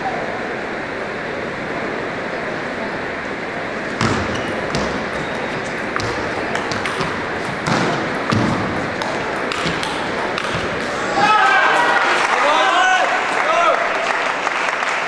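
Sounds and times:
large hall background noise: 0:00.0 - 0:15.0
table tennis ball clicking: 0:04.3 - 0:11.0.

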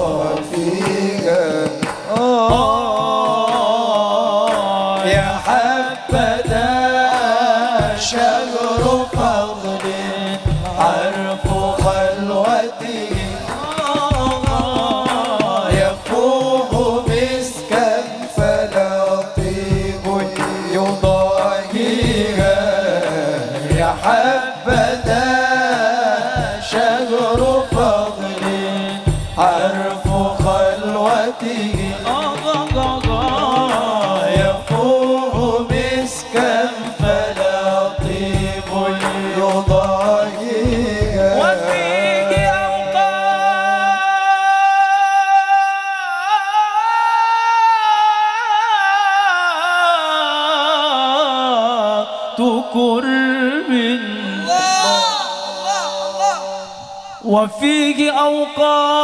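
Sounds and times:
steady drum beat: 0:00.0 - 0:43.3, 0:54.4 - 0:57.5.

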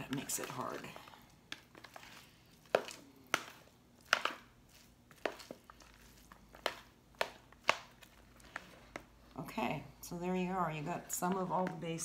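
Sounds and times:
metal spoon stirring salad: 0:00.0 - 0:09.3.

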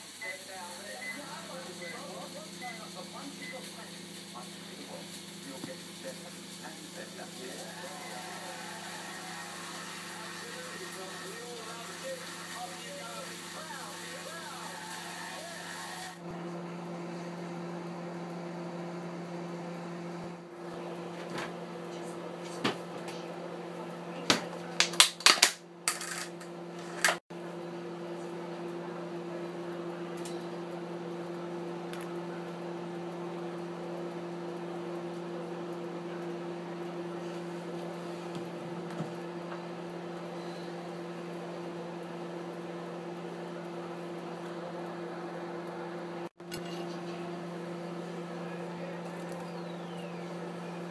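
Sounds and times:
electrical appliance hum: 0:00.0 - 0:50.9
plates and cutlery clinking: 0:46.4 - 0:47.2.

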